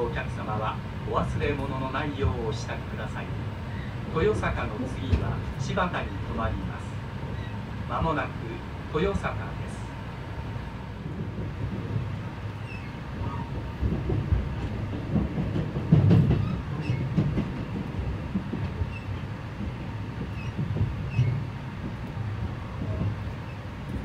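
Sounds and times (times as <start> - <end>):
train wheels rumbling on rail: 0.0 - 24.0
train thumps: 4.9 - 5.6, 11.0 - 24.0.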